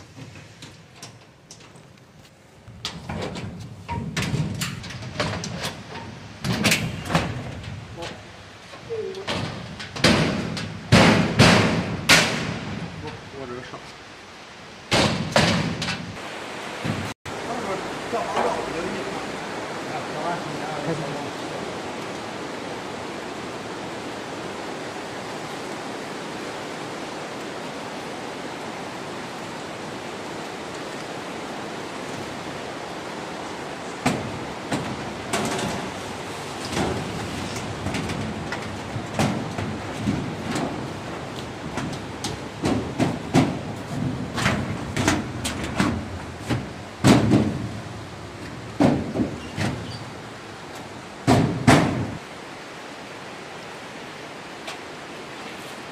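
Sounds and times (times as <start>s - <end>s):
metal knocks and clatters: 2.7s - 13.2s, 14.9s - 16.2s, 34.0s - 50.2s, 51.2s - 52.2s
metal door bangs: 2.9s - 8.2s, 9.2s - 13.2s, 14.9s - 16.2s, 34.0s - 50.1s, 51.2s - 52.2s.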